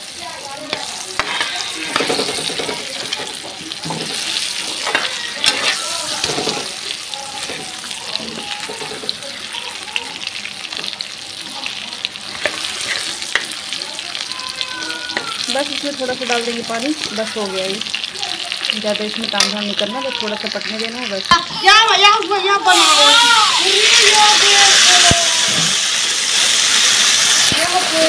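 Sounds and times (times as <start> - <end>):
cooking sizzle: 0.0 - 28.0
spoon clinking and scraping pan: 0.7 - 6.8, 12.3 - 13.6.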